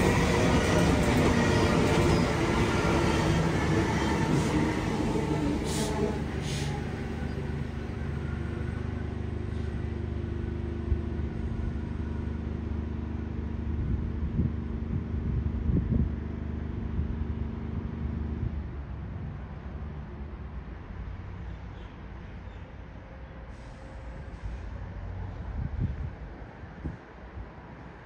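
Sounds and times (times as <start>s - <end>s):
train knocks: 0.0s - 8.6s
train low hum: 0.0s - 28.0s.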